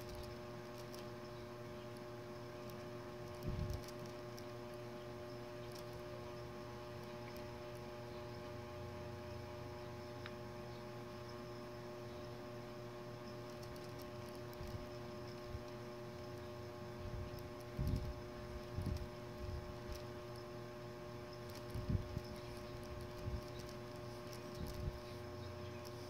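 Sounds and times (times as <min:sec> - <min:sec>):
electrical hum: 0:00.0 - 0:26.0.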